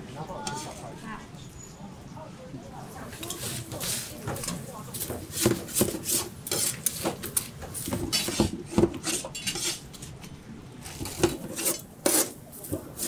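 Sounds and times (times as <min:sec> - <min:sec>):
metal spatula scraping griddle: 0:03.2 - 0:10.1, 0:10.8 - 0:13.0.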